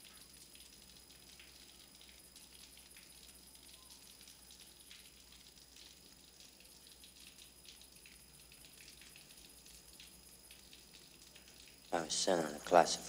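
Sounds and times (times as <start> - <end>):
faint crackling ticks: 0.0 - 12.0.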